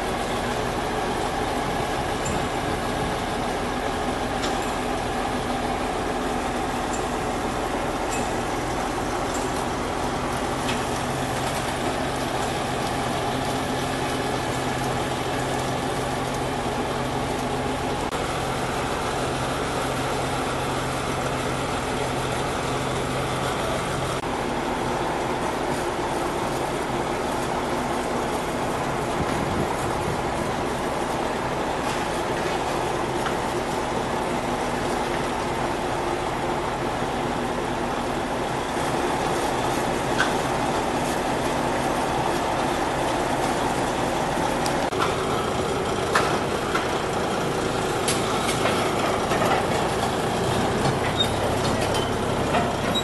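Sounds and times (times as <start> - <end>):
diesel engines humming: 0.0 - 53.0.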